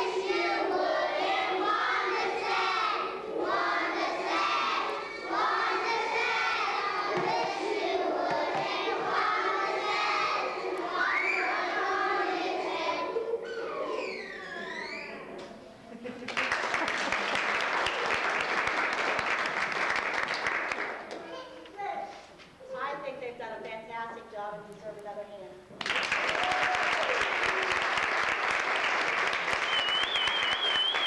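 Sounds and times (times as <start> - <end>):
children singing: 0.0 - 15.4.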